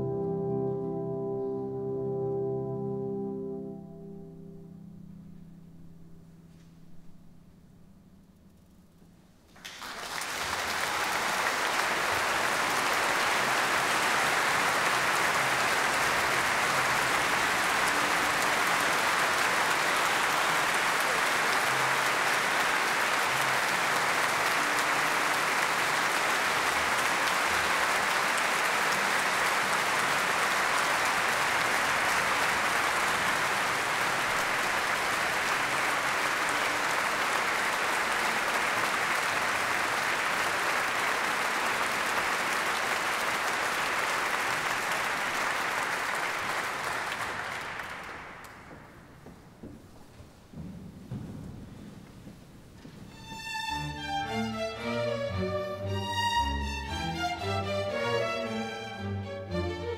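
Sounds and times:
large audience applauding: 0:09.5 - 0:56.0.

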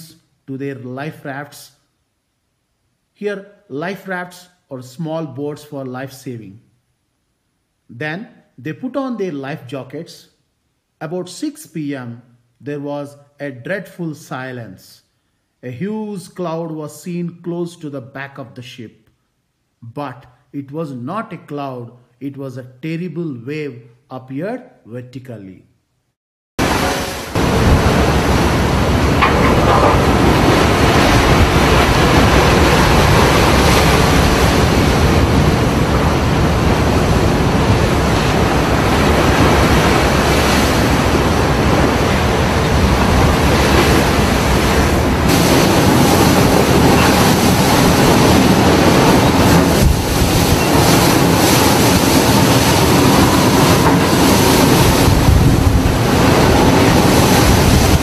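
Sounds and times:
breaking waves: 0:26.6 - 0:58.0
wind: 0:26.6 - 0:58.0.

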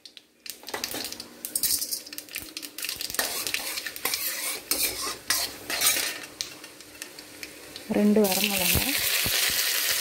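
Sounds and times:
seeds sizzling in hot oil: 0:00.0 - 0:10.0
metal ladle scraping a pan: 0:03.2 - 0:06.3.

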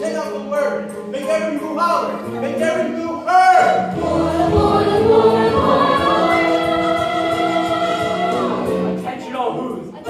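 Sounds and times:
choir singing sustained notes: 0:03.8 - 0:09.0.

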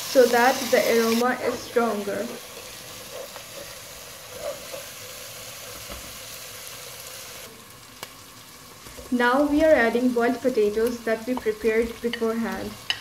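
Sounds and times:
onions sizzling in hot oil: 0:00.0 - 0:13.0
wooden spatula stirring: 0:02.4 - 0:05.0.

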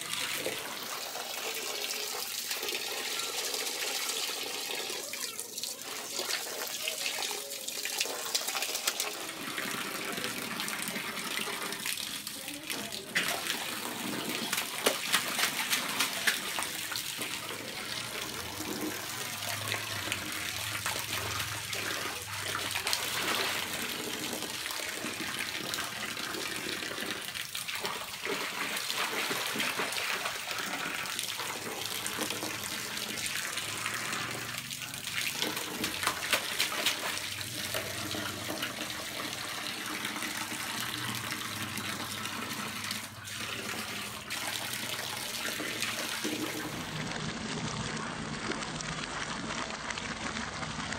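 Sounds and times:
water pouring into pool: 0:00.0 - 0:50.9
child splashing in water: 0:02.8 - 0:39.3.

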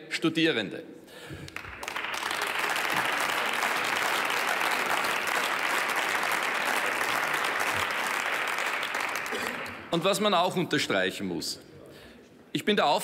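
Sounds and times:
crowd applauding: 0:01.5 - 0:10.0.

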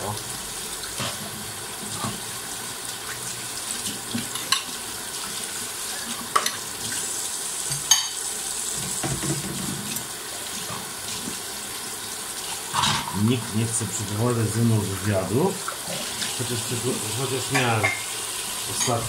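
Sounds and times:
tap water running into metal sink: 0:00.0 - 0:19.0
items knocking in sink: 0:08.8 - 0:10.0.

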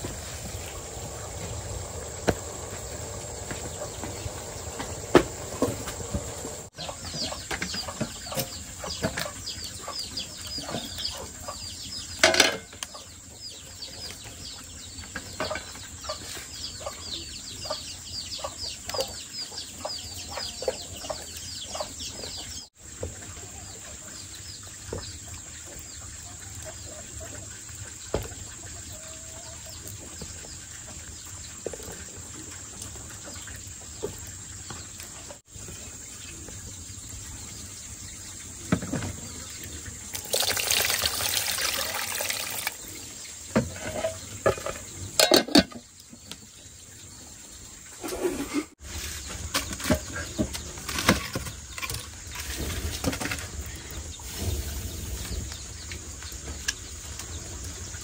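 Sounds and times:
high insect hum: 0:00.0 - 0:06.7
chicks peeping: 0:00.0 - 0:12.2, 0:12.8 - 0:38.6
pots knocking and clinking: 0:12.2 - 0:12.9, 0:43.5 - 0:45.9.

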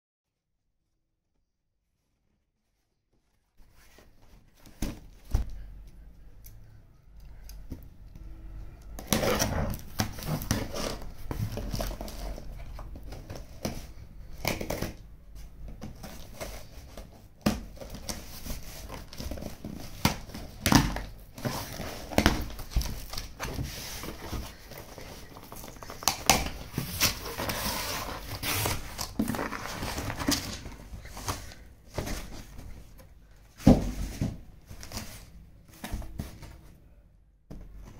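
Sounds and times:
cardboard flaps scraping and knocking: 0:09.0 - 0:14.0, 0:15.8 - 0:36.6
cardboard crinkling: 0:09.0 - 0:36.8.

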